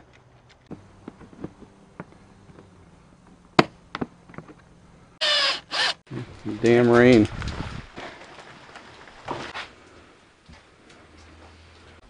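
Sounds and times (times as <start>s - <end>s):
impact driver bursts: 5.2s - 6.1s.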